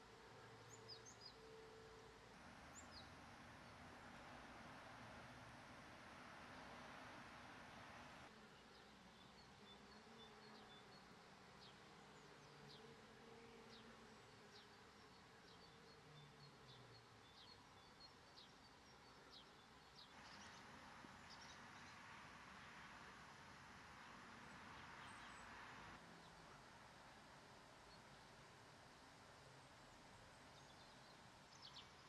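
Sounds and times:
songbirds calling: 0:00.6 - 0:01.5.

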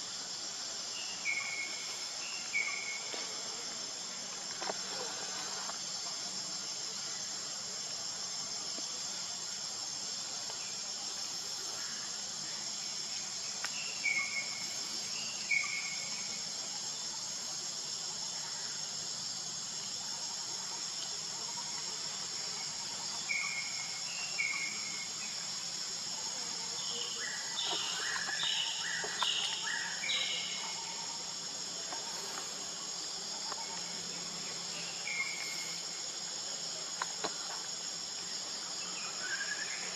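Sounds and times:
insects chirping chorus: 0:00.0 - 0:39.9.

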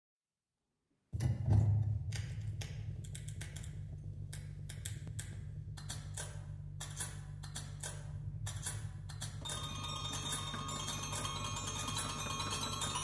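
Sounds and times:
low hum: 0:01.2 - 0:09.6
dry clicks and ticks: 0:02.2 - 0:10.6.

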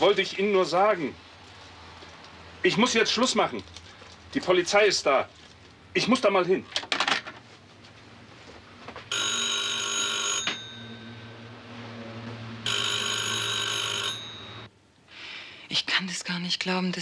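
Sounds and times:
telephone bell ringing: 0:09.1 - 0:11.6, 0:12.6 - 0:14.7.

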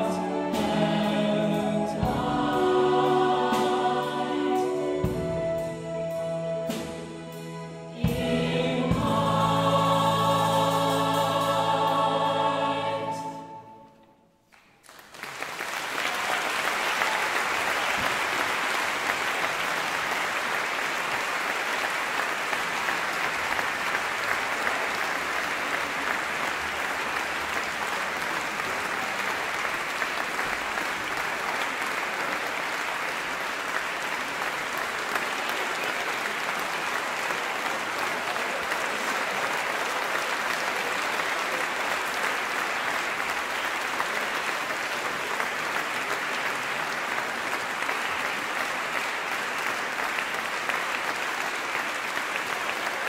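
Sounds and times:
choir singing: 0:00.0 - 0:14.2
audience applause: 0:14.5 - 0:53.0.

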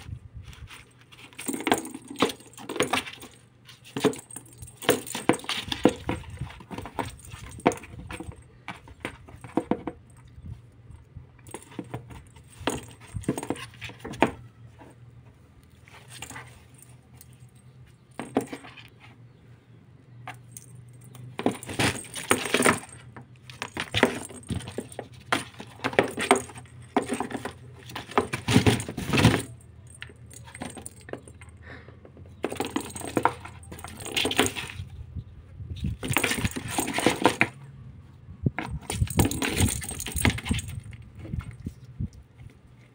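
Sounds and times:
ball rattling: 0:00.6 - 0:10.5, 0:11.4 - 0:14.4, 0:20.2 - 0:31.6, 0:32.2 - 0:35.0, 0:35.8 - 0:37.6, 0:38.5 - 0:41.9.

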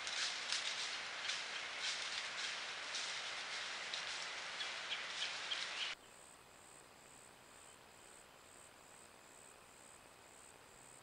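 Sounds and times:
loud steady hiss: 0:00.0 - 0:06.0.

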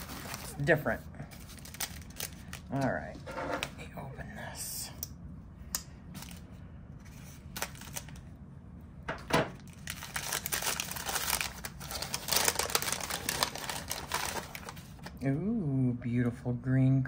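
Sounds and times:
paper crinkling and rustling: 0:00.0 - 0:03.7, 0:06.1 - 0:08.2, 0:09.6 - 0:15.2.

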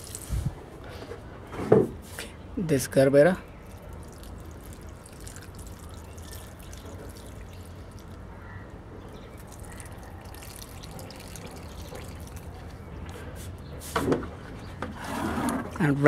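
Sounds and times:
liquid pouring onto soil: 0:00.0 - 0:00.4, 0:03.5 - 0:08.3, 0:09.1 - 0:13.2.

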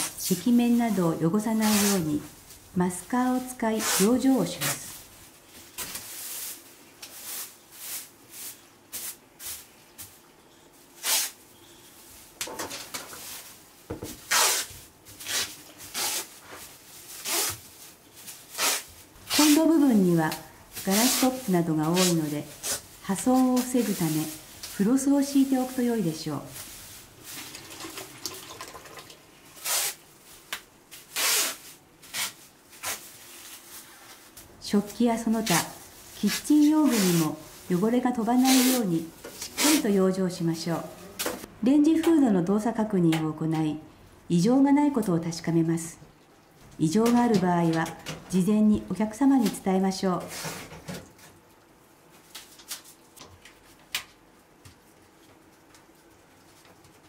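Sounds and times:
plastic film rustling and crinkling: 0:00.1 - 0:40.8, 0:52.1 - 0:57.0.

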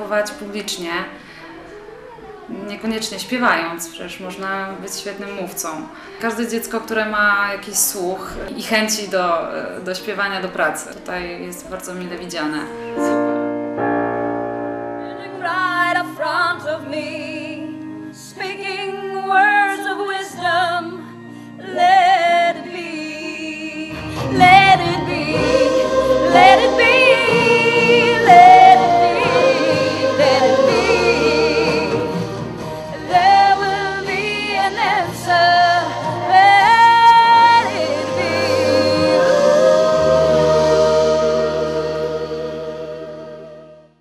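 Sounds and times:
young voices singing: 0:23.8 - 0:43.8
instrumental accompaniment with bass: 0:23.9 - 0:44.0
girl singing with vibrato: 0:33.0 - 0:39.3.

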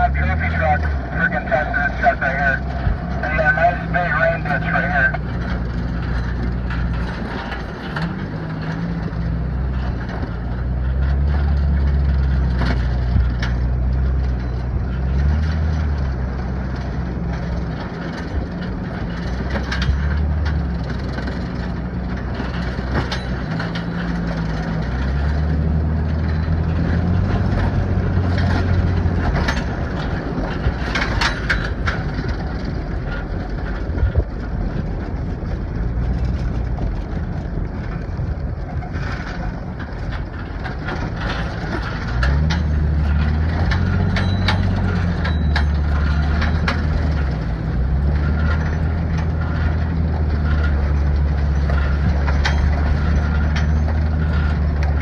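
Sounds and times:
truck engine running under load: 0:00.0 - 0:55.0
sharp metal clanks: 0:16.8 - 0:33.5, 0:40.1 - 0:55.0.

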